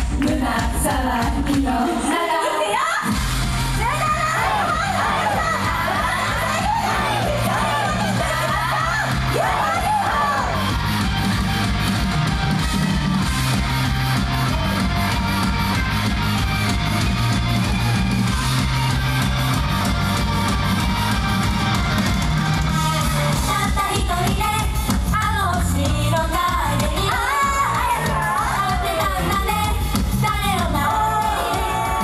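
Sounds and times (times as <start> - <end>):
woman singing: 0.1 - 3.0, 3.8 - 10.0, 23.4 - 32.0
pop beat and bass line: 3.1 - 32.0.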